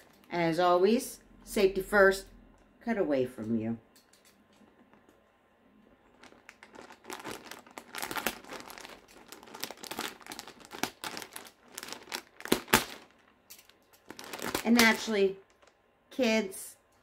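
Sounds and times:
plastic mailer bag crinkling: 5.9s - 15.8s.

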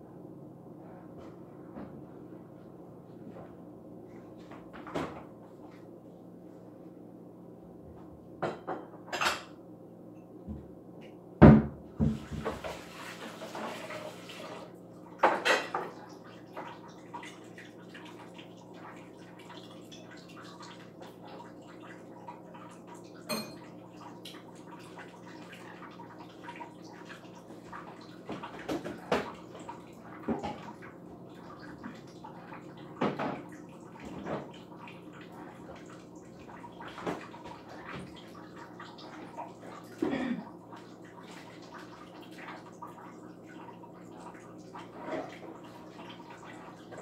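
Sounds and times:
dishes and cutlery clinking: 23.3s - 23.7s.

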